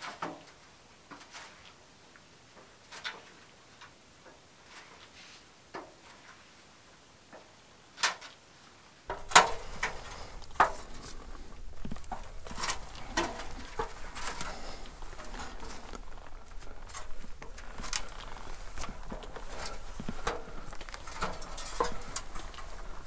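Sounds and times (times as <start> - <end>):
boots knocking on metal ladder: 9.1 - 23.0
scuffs against rock: 9.1 - 23.0.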